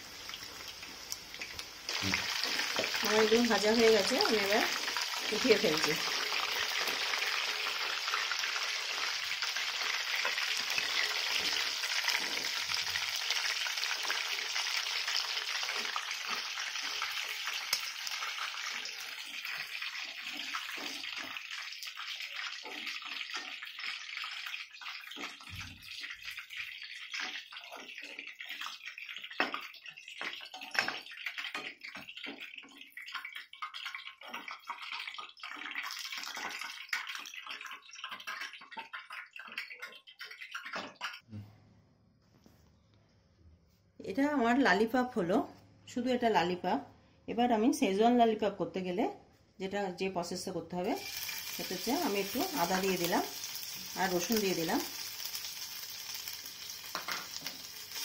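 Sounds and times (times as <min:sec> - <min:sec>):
chicken deep-frying in oil: 0:00.0 - 0:41.4, 0:50.2 - 0:58.0
metal spoon tapping pan: 0:56.9 - 0:57.6.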